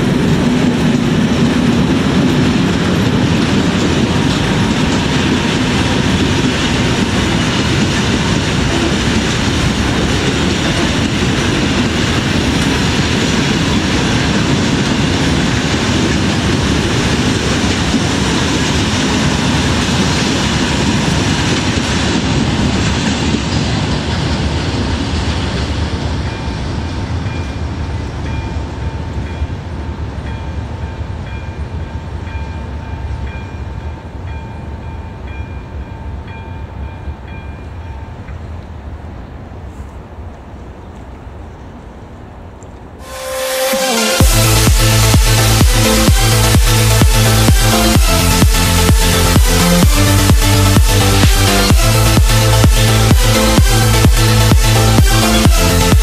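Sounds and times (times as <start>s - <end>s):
freight train wheels clattering: 0.0s - 38.5s, 44.2s - 56.0s
level crossing warning bell: 30.2s - 38.4s.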